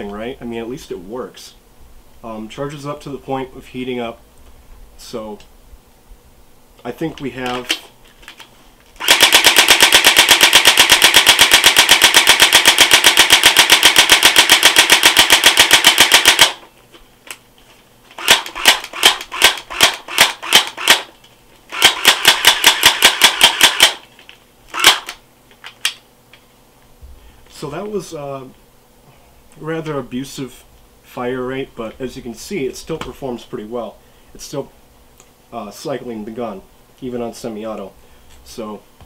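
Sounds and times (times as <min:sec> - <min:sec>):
electric airsoft gun firing: 0:09.0 - 0:16.7, 0:18.2 - 0:21.1, 0:21.7 - 0:24.0, 0:24.7 - 0:25.2.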